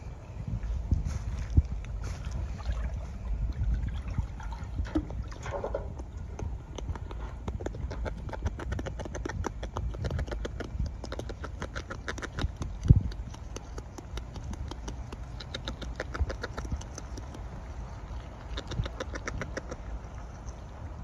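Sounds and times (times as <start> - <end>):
beaver chewing leaf: 5.8 - 21.0.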